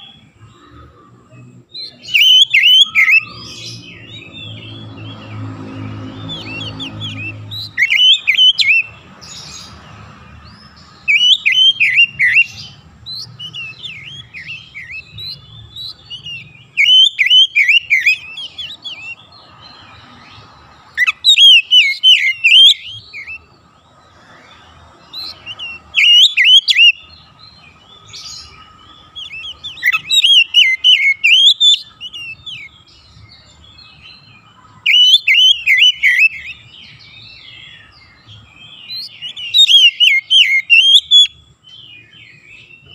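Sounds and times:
bird singing whistled phrases: 0:01.8 - 0:05.1, 0:06.2 - 0:08.9, 0:11.0 - 0:19.2, 0:21.0 - 0:23.4, 0:25.1 - 0:27.1, 0:29.1 - 0:32.9, 0:34.8 - 0:37.9, 0:38.8 - 0:42.9.

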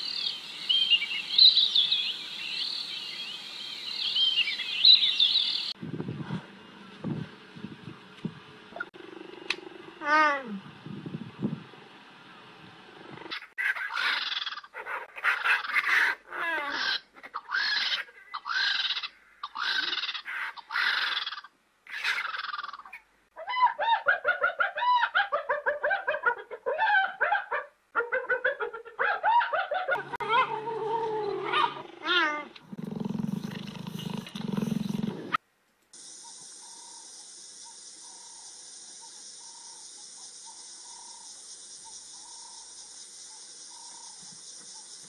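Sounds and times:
animal chattering calls: 0:13.2 - 0:23.0
animal pitched cries: 0:13.4 - 0:33.1.

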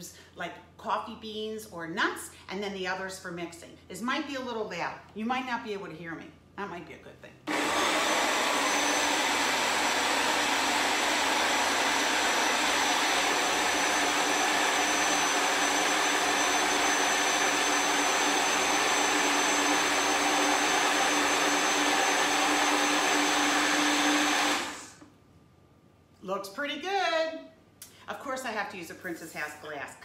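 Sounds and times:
blender motor running: 0:07.5 - 0:25.1.

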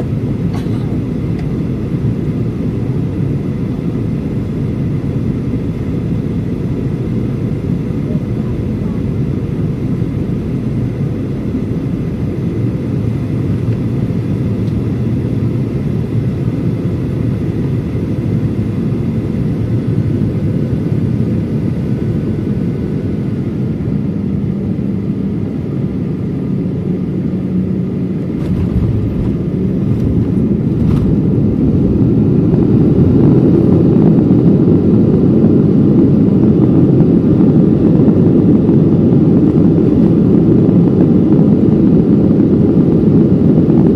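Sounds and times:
jet engine rumble: 0:00.0 - 0:43.9
rushing air: 0:28.1 - 0:34.4.

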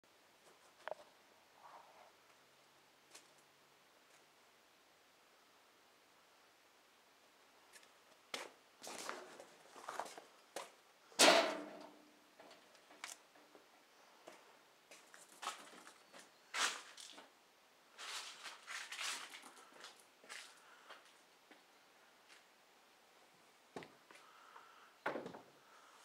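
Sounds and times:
rustling: 0:07.7 - 0:10.8, 0:14.3 - 0:21.2.

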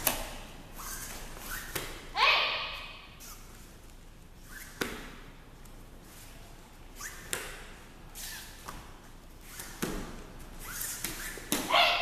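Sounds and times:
uniform snapping and swishing: 0:00.0 - 0:02.1, 0:06.9 - 0:11.7
person shouting: 0:02.2 - 0:02.9, 0:11.7 - 0:12.0.

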